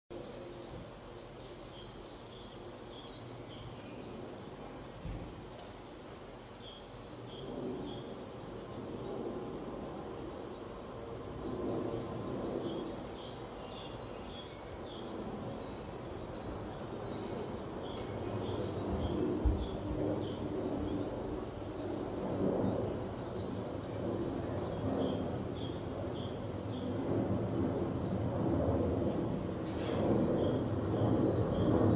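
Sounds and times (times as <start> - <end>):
small birds singing: 0.1 - 27.2, 27.8 - 28.4, 29.0 - 31.9
outdoor background noise: 0.1 - 31.9.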